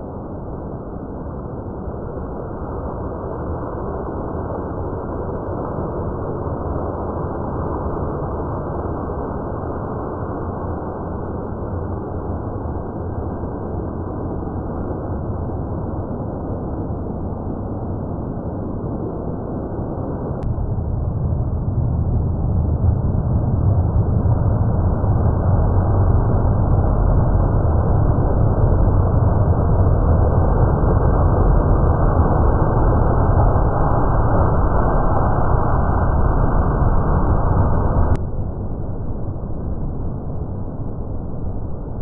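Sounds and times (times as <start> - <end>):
deep rushing rumble: 20.1 - 42.0.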